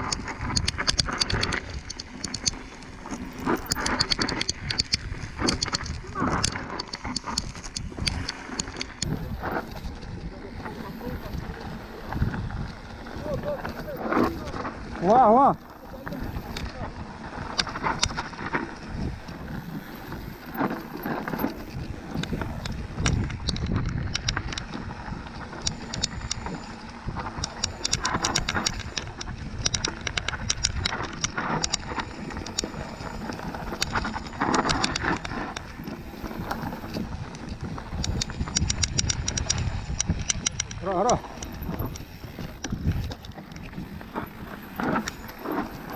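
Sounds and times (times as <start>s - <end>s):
bike clicks and rattles: 0.0s - 45.9s
wind buffeting microphone: 0.0s - 45.9s.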